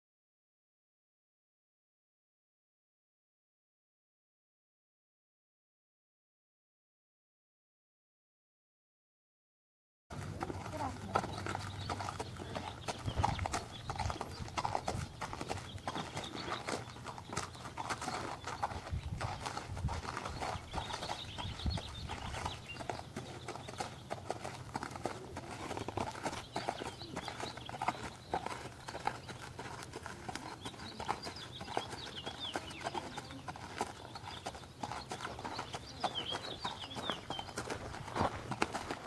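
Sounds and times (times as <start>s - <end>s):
horse hooves clip-clopping: 10.1s - 39.0s.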